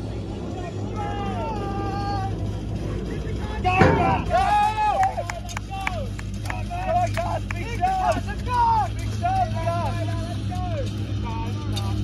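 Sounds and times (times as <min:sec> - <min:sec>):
person cheering: 0:04.3 - 0:06.1.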